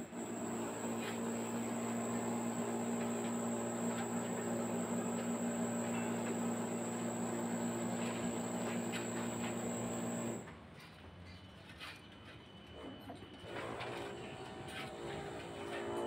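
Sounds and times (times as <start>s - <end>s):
electric motor hum: 0.0s - 10.4s
thin high whine: 0.6s - 10.4s.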